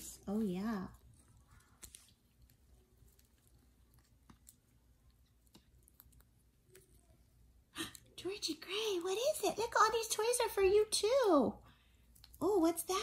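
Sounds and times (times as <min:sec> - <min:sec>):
faint clicks and taps: 0:01.2 - 0:07.2.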